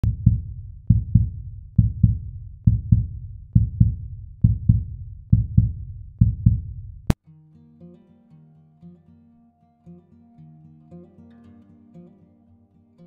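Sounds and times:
heartbeat double thumps: 0.0 - 7.2.

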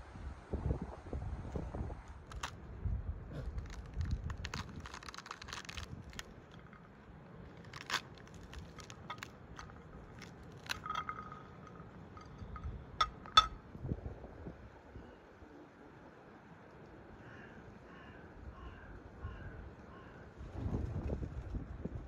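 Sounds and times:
fruit rind cracking and tearing: 2.3 - 2.6, 3.4 - 13.5.

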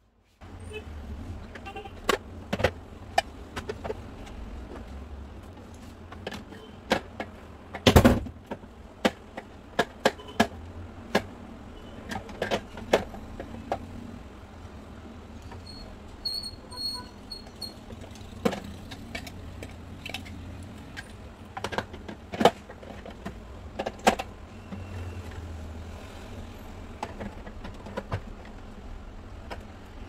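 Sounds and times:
plastic parts knocking and clicking: 1.4 - 11.4, 12.0 - 14.0, 17.8 - 25.4, 26.9 - 30.0.

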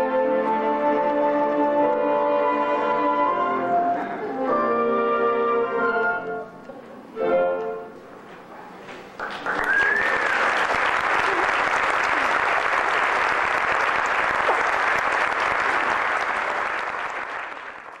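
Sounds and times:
audience applauding: 9.1 - 18.0.

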